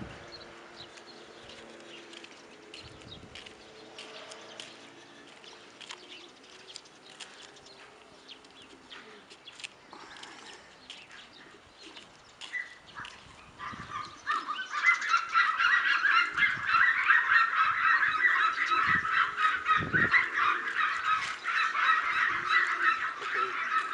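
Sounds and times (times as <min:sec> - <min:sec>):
flock of birds honking: 0:13.6 - 0:23.9.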